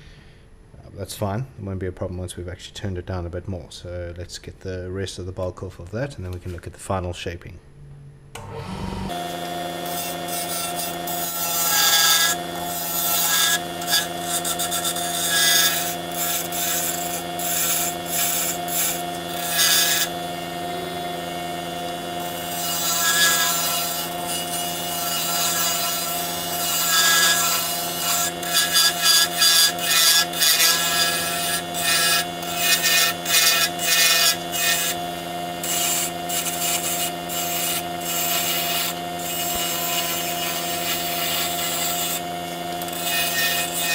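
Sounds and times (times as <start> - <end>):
wood lathe motor humming: 8.4 - 43.9
turning tool scraping wood: 9.4 - 43.9.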